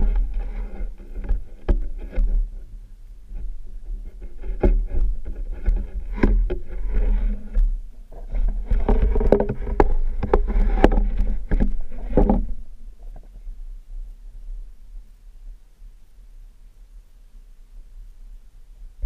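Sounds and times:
muffled underwater knocks and clicks: 0:00.0 - 0:02.6, 0:03.3 - 0:13.5
steady low rumble: 0:00.0 - 0:19.0.

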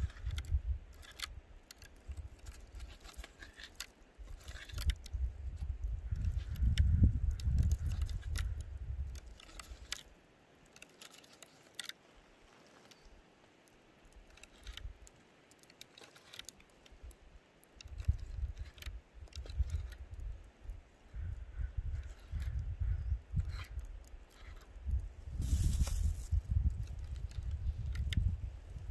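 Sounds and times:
wind rumble on microphone: 0:00.0 - 0:03.6, 0:04.2 - 0:09.9, 0:17.8 - 0:28.9.

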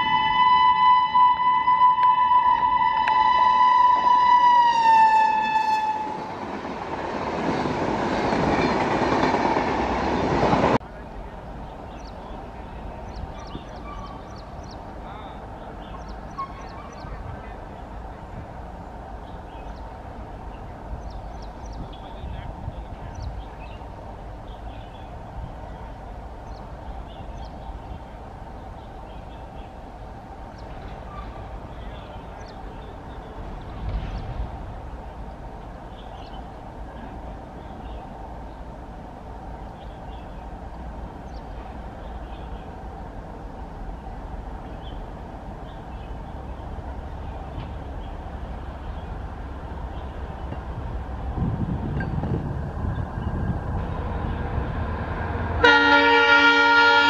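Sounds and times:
train horn: 0:00.0 - 0:06.4, 0:55.6 - 0:57.0
train coaches rushing past: 0:00.0 - 0:57.0
birds chirping: 0:11.2 - 0:38.8, 0:39.5 - 0:50.8.

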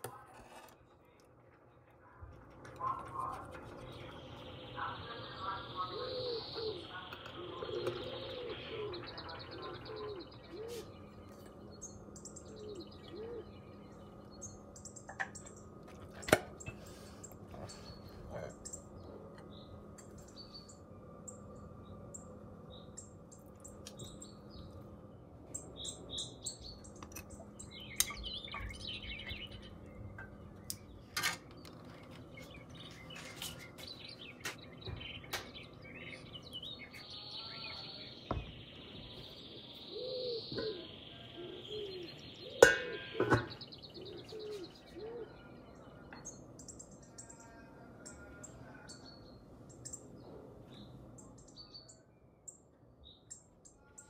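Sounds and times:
faint steady hum: 0:00.0 - 0:54.0
small birds chirping: 0:00.1 - 0:54.0
dove cooing: 0:05.8 - 0:11.1, 0:12.5 - 0:13.6, 0:39.8 - 0:45.5.

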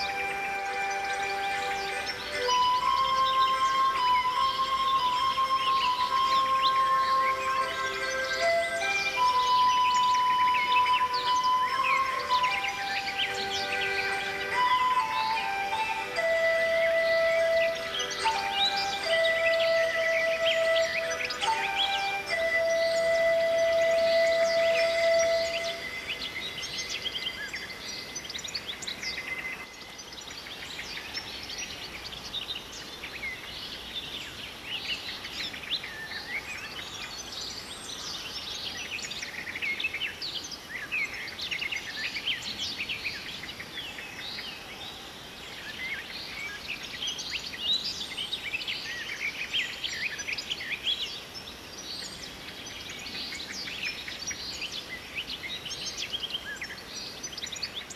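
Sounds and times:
pan flute music: 0:00.0 - 0:27.1
small birds chirping: 0:00.0 - 0:57.9
steady hiss: 0:00.0 - 0:57.9.

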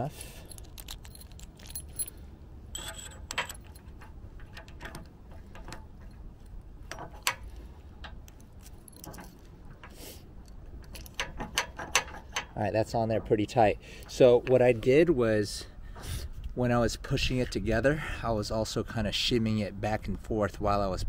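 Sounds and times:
keys jangling on ring: 0:00.3 - 0:03.9, 0:08.4 - 0:09.5
light metal clicks: 0:02.8 - 0:13.4.

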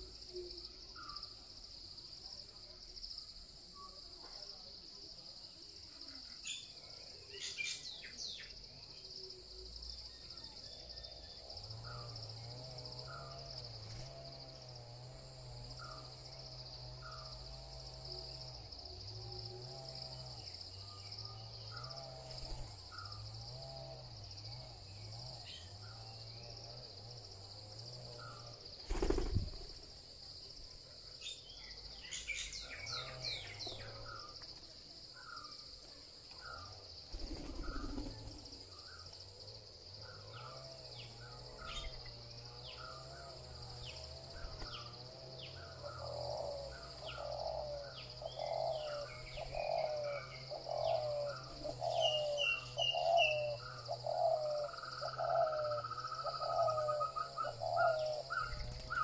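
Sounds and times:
high insect drone: 0:00.0 - 0:59.0
birds calling: 0:36.3 - 0:39.2, 0:40.0 - 0:59.0.

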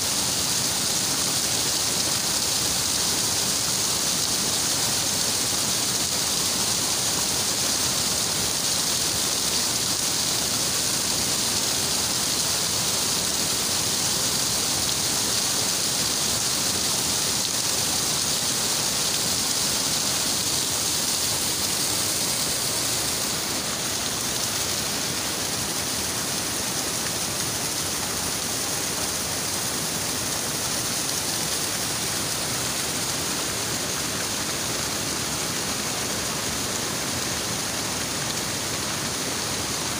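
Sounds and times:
waterfall splashing onto rocks: 0:00.0 - 0:39.9.

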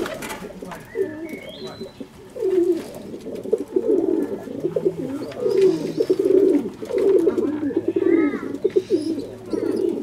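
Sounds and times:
pigeons cooing: 0:00.0 - 0:10.0.

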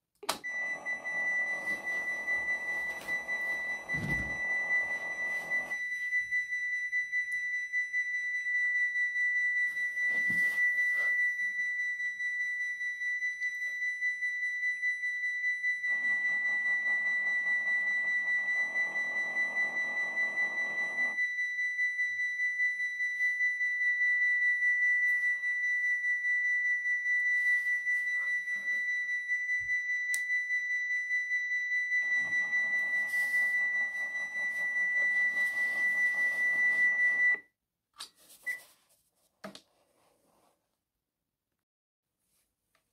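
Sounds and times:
electronic warning bell ringing: 0:00.5 - 0:05.8, 0:15.9 - 0:21.2, 0:32.0 - 0:37.4.

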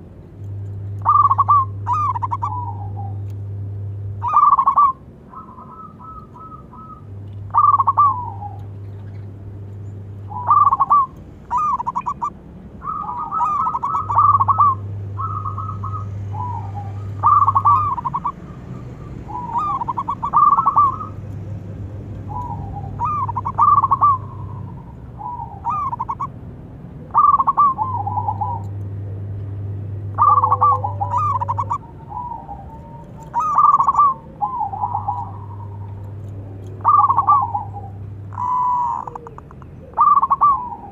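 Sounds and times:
dove cooing: 0:00.9 - 0:03.3, 0:04.1 - 0:09.6, 0:10.2 - 0:21.4, 0:22.1 - 0:26.4, 0:27.0 - 0:40.9.

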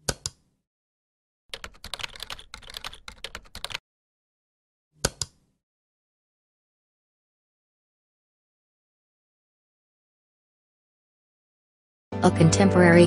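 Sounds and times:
keyboard typing: 0:01.5 - 0:03.8.

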